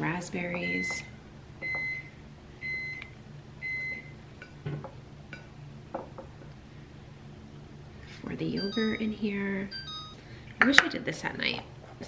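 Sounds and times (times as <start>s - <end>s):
refrigerator alarm beeping: 0.6s - 4.2s, 8.6s - 10.4s.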